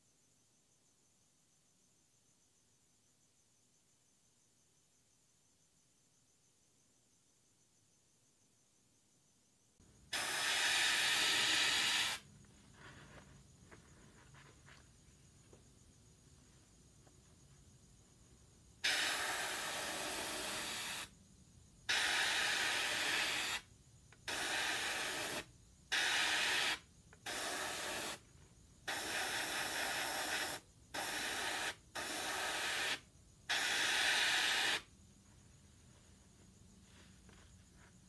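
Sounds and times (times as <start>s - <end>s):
airbrush spraying bursts of air: 10.1s - 12.3s, 18.8s - 21.1s, 21.9s - 28.2s, 28.9s - 34.9s.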